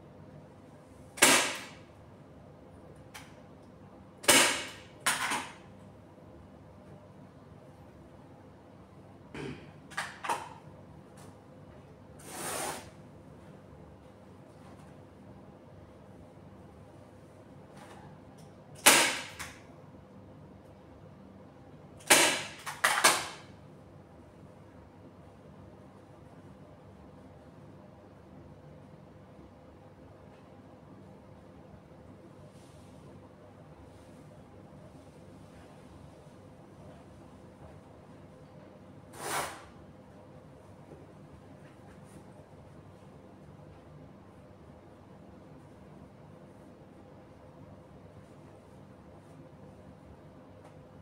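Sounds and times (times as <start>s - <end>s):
staple gun firing: 1.2s - 1.8s, 18.8s - 19.5s, 22.0s - 23.4s.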